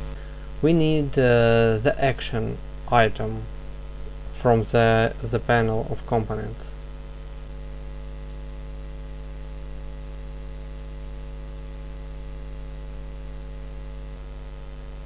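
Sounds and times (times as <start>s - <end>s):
faint hiss: 0.0s - 6.8s
electrical mains hum: 0.0s - 15.0s.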